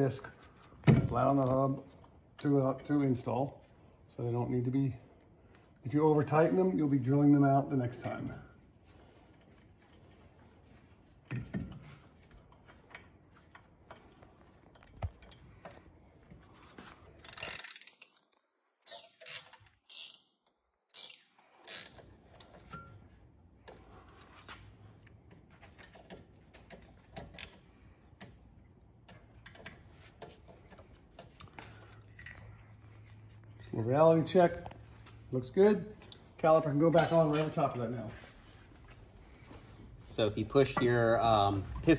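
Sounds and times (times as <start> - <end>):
hand ratchet clicking: 17.2 - 22.6.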